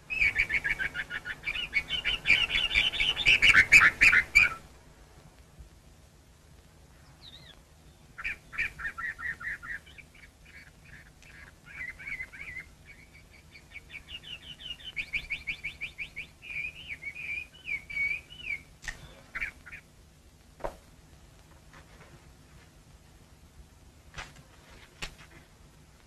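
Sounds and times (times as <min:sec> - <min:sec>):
songbird singing: 0:00.0 - 0:04.8, 0:06.8 - 0:20.5.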